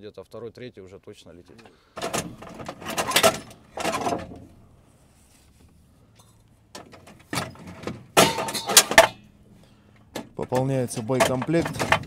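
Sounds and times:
metal clanks inside a tank: 0:06.2 - 0:09.3, 0:10.0 - 0:12.0.

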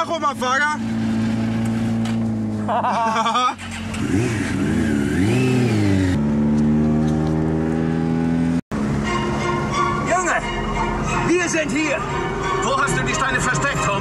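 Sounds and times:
motorcycle engine idling and revving: 0:00.0 - 0:11.2.

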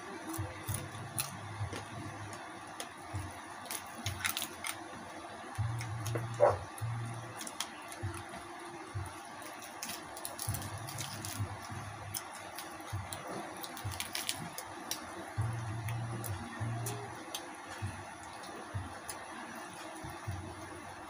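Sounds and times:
sharp clicks and crackles: 0:03.6 - 0:04.8, 0:05.5 - 0:08.4, 0:09.0 - 0:20.2.

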